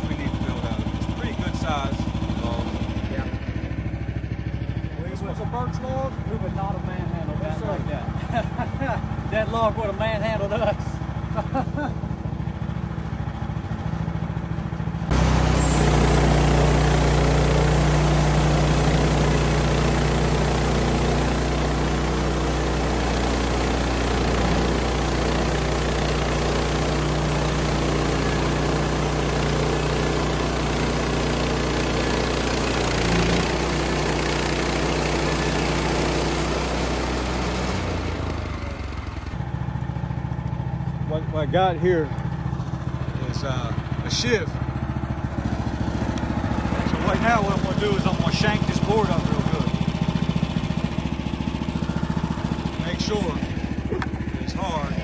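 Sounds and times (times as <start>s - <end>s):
sawmill engine running: 0.0s - 55.0s
saw blade cutting log: 15.1s - 39.4s, 45.7s - 50.6s, 51.3s - 55.0s.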